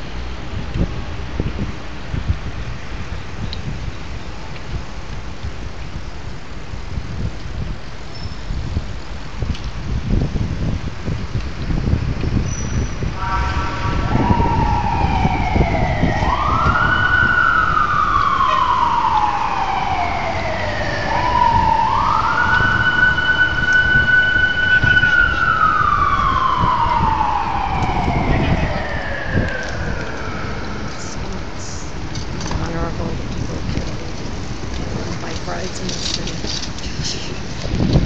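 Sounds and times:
road noise: 0:00.0 - 0:38.0
emergency siren wailing: 0:13.1 - 0:34.3
horn-like tone: 0:13.2 - 0:14.9, 0:18.4 - 0:18.9, 0:28.1 - 0:29.5.

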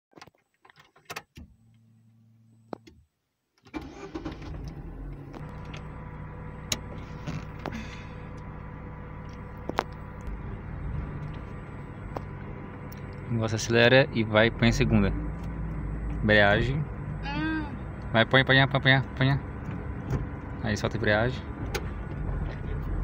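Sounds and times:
ignition hum: 0:01.1 - 0:23.0
ignition clicks: 0:03.6 - 0:06.0, 0:06.6 - 0:10.4
car engine idling: 0:03.8 - 0:23.0.

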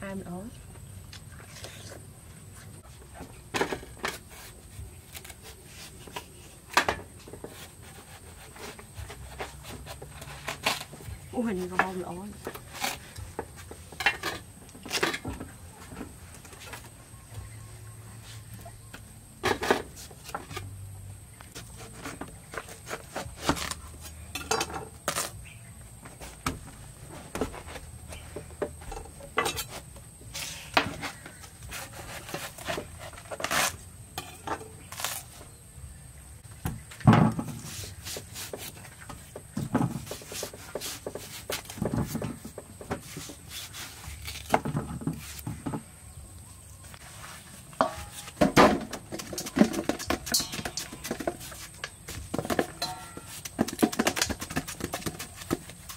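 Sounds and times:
knife cutting watermelon: 0:07.4 - 0:13.5, 0:21.6 - 0:24.2, 0:29.5 - 0:35.5, 0:39.9 - 0:45.5
slices clinking into metal bowl: 0:50.0 - 0:51.2, 0:52.8 - 0:53.5.

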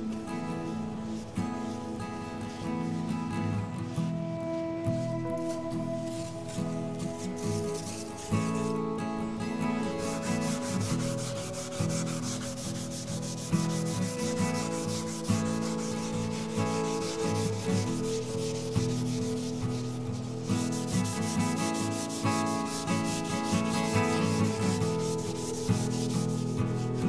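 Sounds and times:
scouring pad scrubbing metal: 0:07.2 - 0:08.7, 0:09.8 - 0:27.0.

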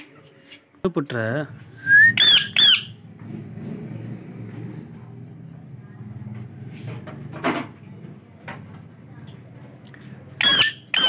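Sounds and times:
parakeet squawk: 0:02.2 - 0:03.0, 0:10.4 - 0:11.0.

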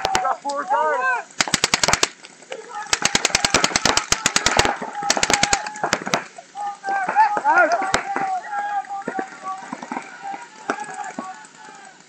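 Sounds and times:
paintball markers firing rapidly: 0:01.4 - 0:02.2, 0:02.9 - 0:06.3.

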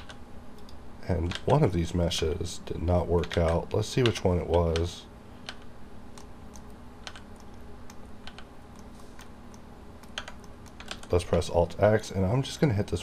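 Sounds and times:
keyboard and mouse clicks: 0:00.0 - 0:01.6, 0:03.2 - 0:11.5
faint steady hum: 0:00.0 - 0:13.0.

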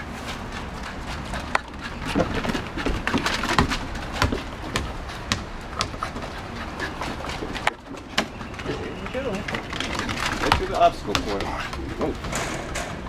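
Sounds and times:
dog claws clicking on wood: 0:09.4 - 0:11.8.

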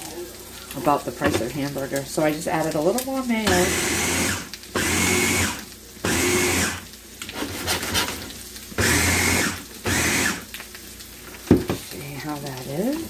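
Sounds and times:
food chopper motor whirring: 0:03.4 - 0:10.6.

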